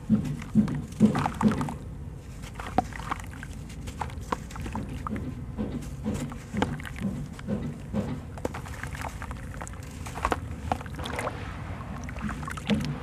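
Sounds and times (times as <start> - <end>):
lump crunching in hands: 0.0 - 13.0
grit splashing into water: 0.4 - 5.2, 8.4 - 13.0.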